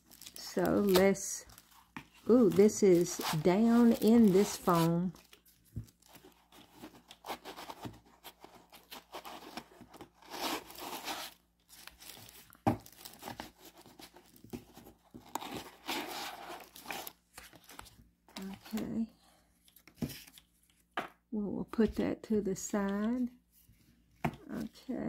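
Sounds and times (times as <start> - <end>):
tissue paper rustling: 0.0 - 9.5.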